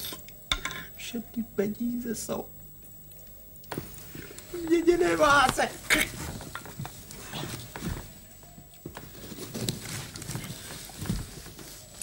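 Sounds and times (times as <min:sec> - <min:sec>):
soft taps and rustles: 0:06.3 - 0:12.0.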